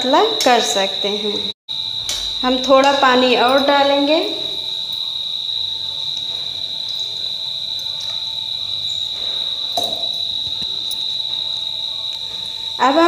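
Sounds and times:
high-pitched insect trill: 0.0s - 13.0s.

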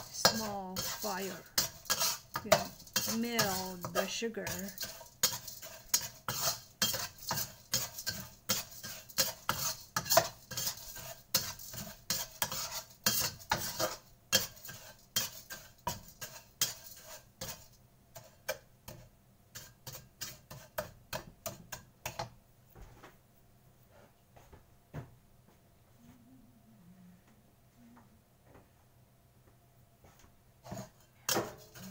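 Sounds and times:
metal spatula scraping a wok: 0.0s - 22.2s, 30.6s - 31.9s.

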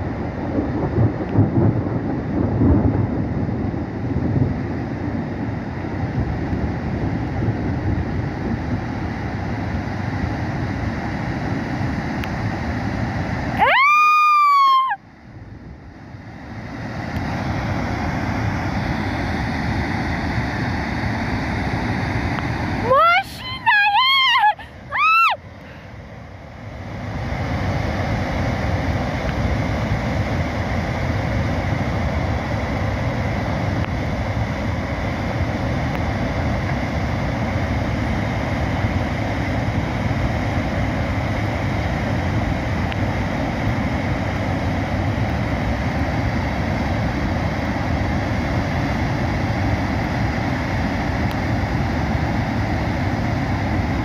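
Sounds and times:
muddy water and boulders rushing: 16.1s - 54.0s.

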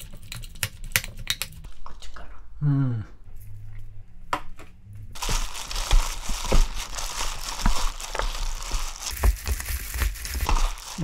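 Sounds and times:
plastic glove crinkling: 5.2s - 11.0s
wet food squishing: 5.2s - 11.0s.

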